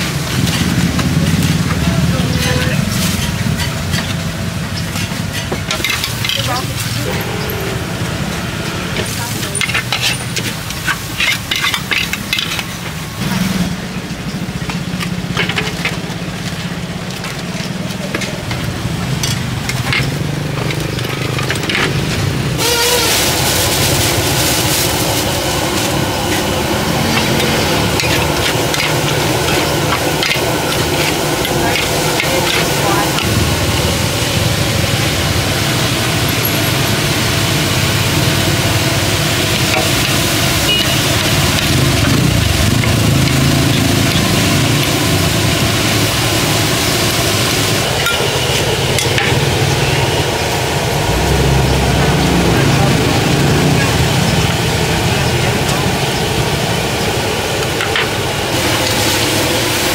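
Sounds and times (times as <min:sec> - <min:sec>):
metal utensils scraping a wok: 0:00.0 - 0:34.8
loud sizzle in a wok: 0:00.0 - 0:59.9.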